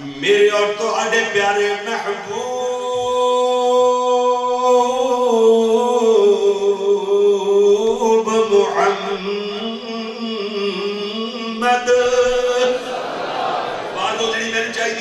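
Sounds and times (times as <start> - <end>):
man chanting melodically: 0.0 - 12.9, 13.9 - 15.0.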